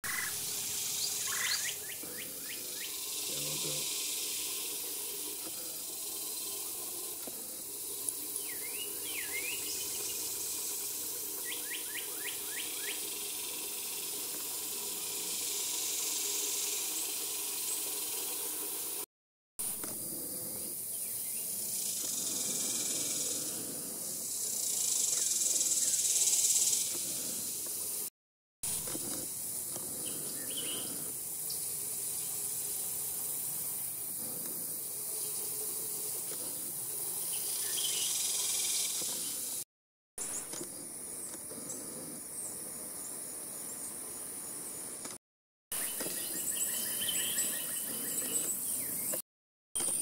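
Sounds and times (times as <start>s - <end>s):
high-pitched insect chorus: 0.0s - 19.0s, 19.6s - 28.1s, 28.7s - 39.6s, 45.8s - 49.2s
short bird calls: 1.0s - 3.8s.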